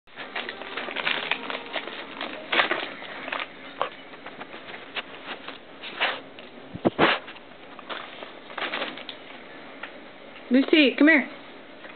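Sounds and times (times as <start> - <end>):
wrapping paper crinkling: 0.1 - 9.4.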